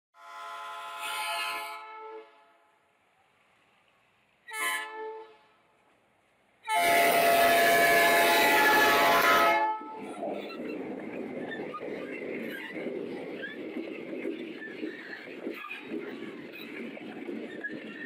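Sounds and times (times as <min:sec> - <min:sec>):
locomotive air horn: 0:00.2 - 0:02.7, 0:04.5 - 0:05.6, 0:06.7 - 0:10.0
locomotive rumble: 0:06.7 - 0:18.0.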